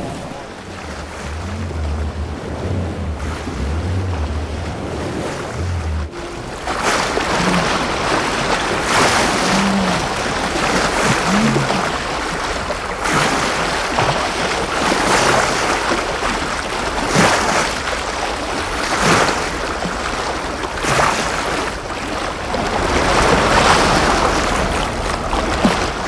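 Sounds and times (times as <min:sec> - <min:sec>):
wind noise on microphone: 0:00.0 - 0:11.9
water slapping and splashing: 0:00.0 - 0:26.0.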